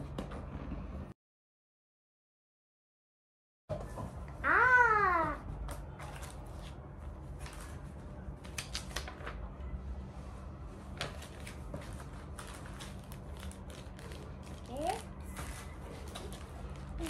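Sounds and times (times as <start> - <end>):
packaging rustles and clicks: 11.0 - 17.0
plastic bag rustling: 11.2 - 17.0.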